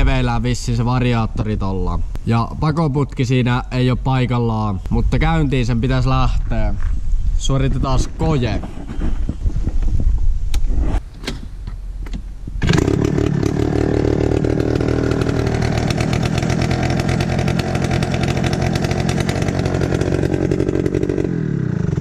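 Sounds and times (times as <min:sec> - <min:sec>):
scooter engine starting and running: 0:12.6 - 0:22.0.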